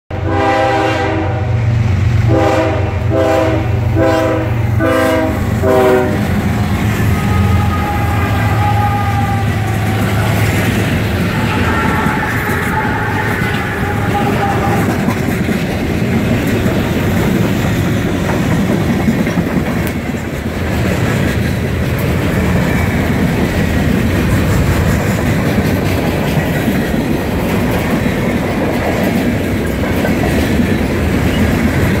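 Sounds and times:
train horn: 0:00.1 - 0:15.4
diesel locomotive engines humming: 0:00.1 - 0:32.0
train wheels clacking on rails: 0:04.0 - 0:32.0.

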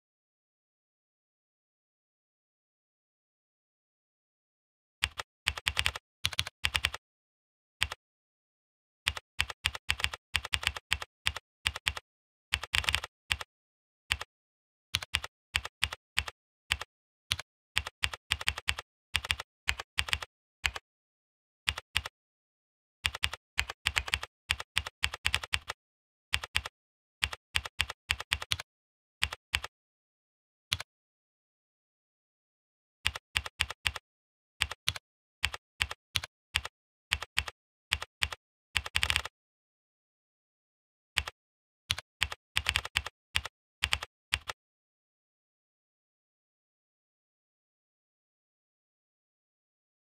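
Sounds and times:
keyboard typing clicks: 0:05.0 - 0:07.0, 0:09.1 - 0:12.0, 0:12.6 - 0:13.5, 0:15.0 - 0:20.8, 0:21.7 - 0:22.1, 0:23.1 - 0:25.8, 0:26.4 - 0:28.6, 0:29.2 - 0:29.7, 0:33.1 - 0:34.0, 0:34.6 - 0:39.3, 0:41.2 - 0:44.6.

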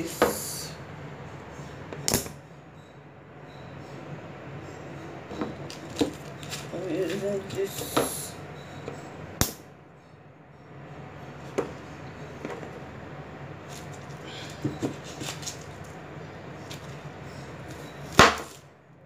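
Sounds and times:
low steady hum: 0:00.0 - 0:19.0.

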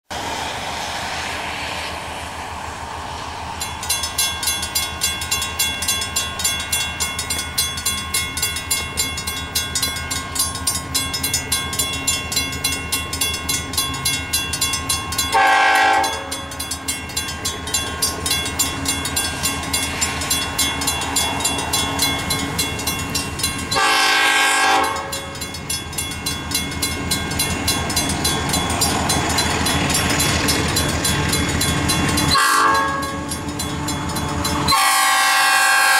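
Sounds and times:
railroad crossing bell ringing: 0:03.5 - 0:35.9
locomotive horn blasts: 0:15.3 - 0:16.5, 0:23.7 - 0:25.4, 0:32.3 - 0:33.4, 0:34.6 - 0:35.9.

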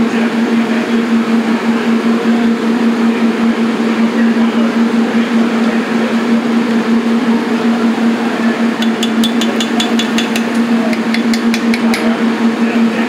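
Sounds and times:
kitchen machine hum: 0:07.5 - 0:13.0
rapid sharp clicks: 0:08.8 - 0:12.1.

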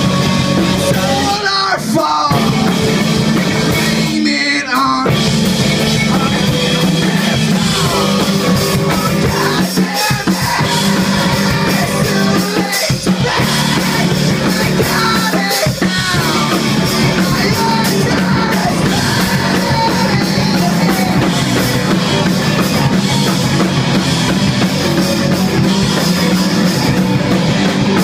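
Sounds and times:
drum kit: 0:00.0 - 0:28.0
electric guitar: 0:00.0 - 0:28.0
person singing: 0:00.8 - 0:03.0, 0:03.6 - 0:21.9.

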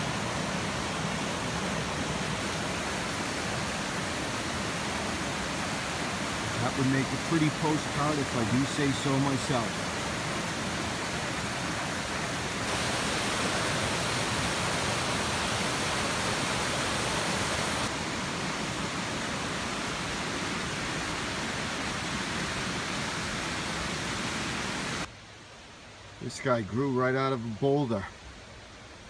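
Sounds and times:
waterfall rushing: 0:00.0 - 0:26.6.

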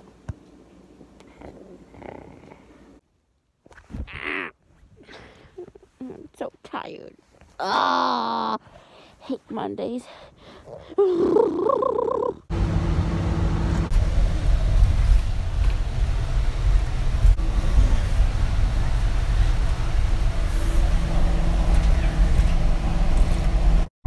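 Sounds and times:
car engine hum: 0:12.5 - 0:23.9
road rumble: 0:12.5 - 0:23.9.

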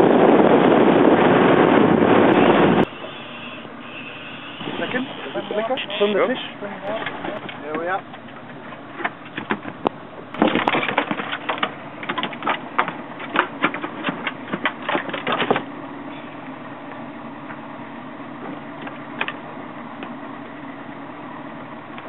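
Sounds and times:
outboard motor idling: 0:02.1 - 0:22.0
fish thrashing on boat deck: 0:02.9 - 0:15.8.

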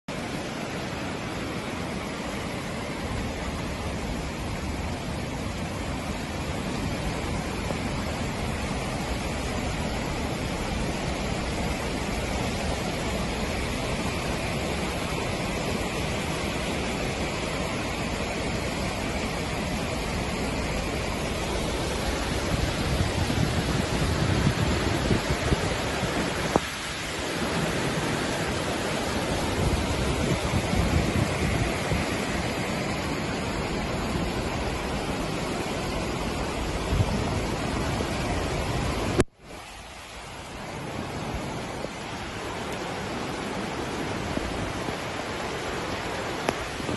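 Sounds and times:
floodwater rushing down street: 0:00.1 - 0:46.9.

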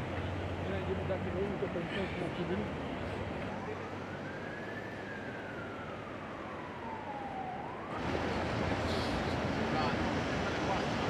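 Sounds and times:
outdoor background noise: 0:00.0 - 0:11.0
siren wailing: 0:03.8 - 0:08.4.

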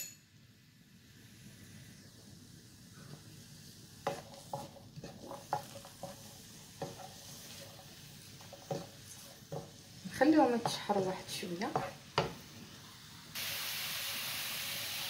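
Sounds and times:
onion frying in oil: 0:00.8 - 0:15.0
wooden spatula scraping pan: 0:04.0 - 0:12.4.

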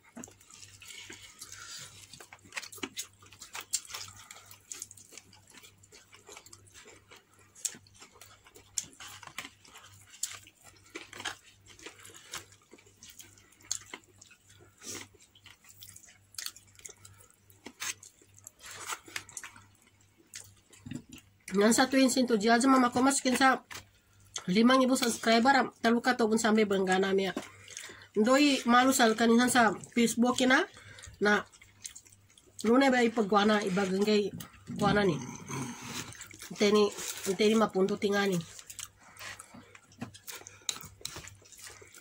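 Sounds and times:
chewing: 0:00.0 - 0:21.6, 0:26.9 - 0:42.0
crispy chicken torn apart: 0:07.6 - 0:14.2.

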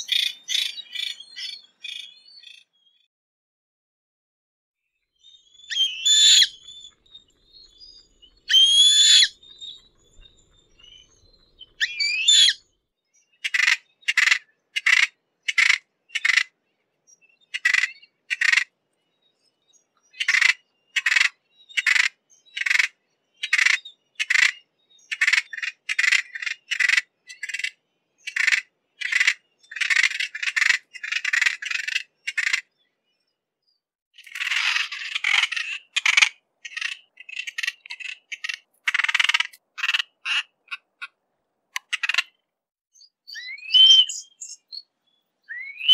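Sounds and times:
bird calling: 0:05.5 - 0:12.6, 0:34.2 - 0:41.2, 0:43.3 - 0:45.9.

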